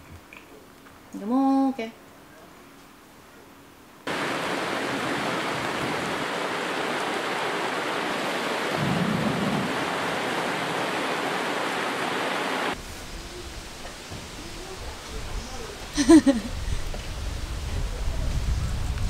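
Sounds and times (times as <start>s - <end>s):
heavy rain on deck and gravel: 4.1s - 19.0s.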